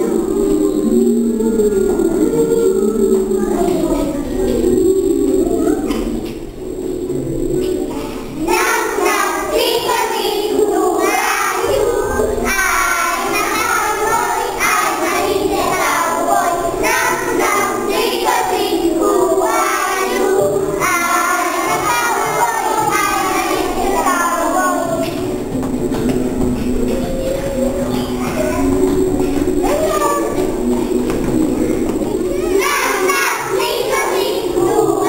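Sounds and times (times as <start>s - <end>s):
children singing: 0.0s - 35.0s.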